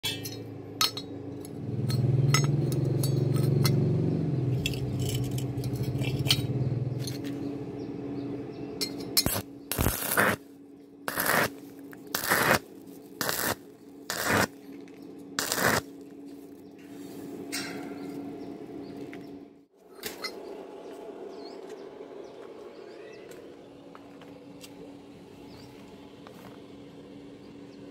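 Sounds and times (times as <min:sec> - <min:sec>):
steady low hum: 0:00.0 - 0:27.9
welding arc crackling: 0:09.2 - 0:10.4, 0:11.1 - 0:14.6, 0:15.4 - 0:15.9.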